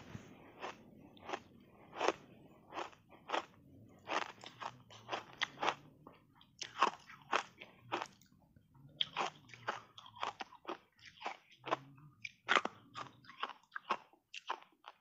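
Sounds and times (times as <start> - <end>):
crunching and chewing ice: 0.6 - 15.0.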